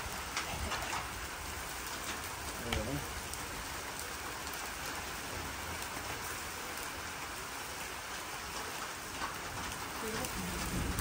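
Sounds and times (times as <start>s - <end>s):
raindrop ticks: 0.0s - 5.1s, 7.8s - 11.0s
steady rain hiss: 0.0s - 11.0s.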